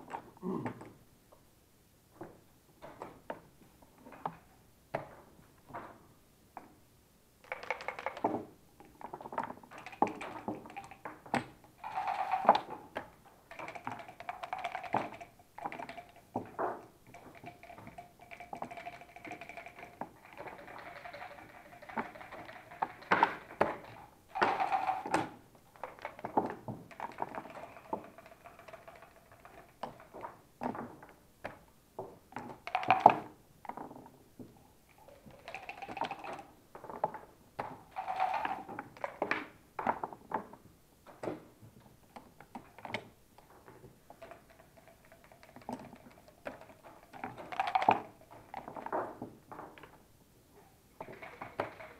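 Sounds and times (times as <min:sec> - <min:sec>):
checkers clicking on board: 0:07.4 - 0:08.3, 0:09.7 - 0:30.3, 0:32.4 - 0:33.3, 0:35.1 - 0:36.5, 0:37.9 - 0:39.4, 0:44.1 - 0:49.0, 0:51.0 - 0:51.9.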